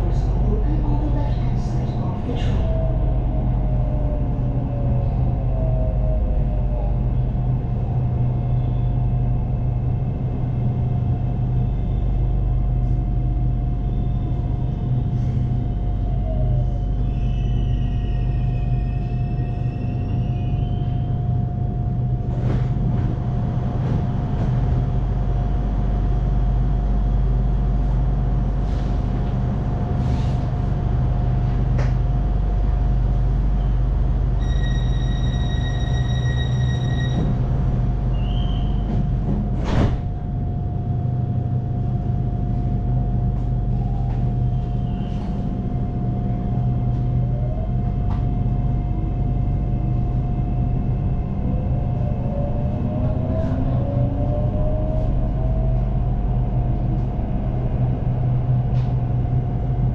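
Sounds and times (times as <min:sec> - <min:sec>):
electric train rumble and whine: 0:00.0 - 0:59.9
electronic tone: 0:34.4 - 0:37.2.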